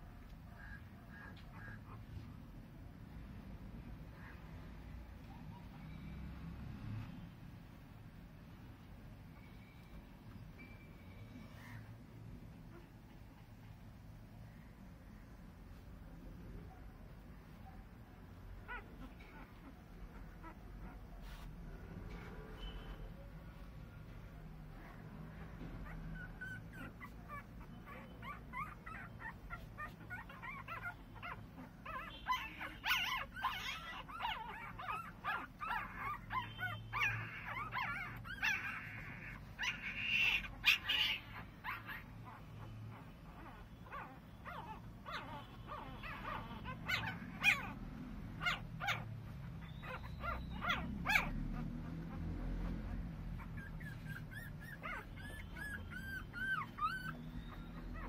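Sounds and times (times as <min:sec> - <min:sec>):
puppies squeaking and whimpering: 0:00.6 - 0:02.6, 0:18.5 - 0:23.1, 0:24.8 - 0:58.0.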